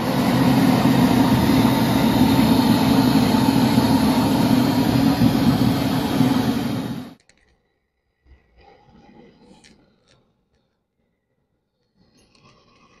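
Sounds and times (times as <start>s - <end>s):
steam locomotive rushing noise: 0.0s - 7.2s.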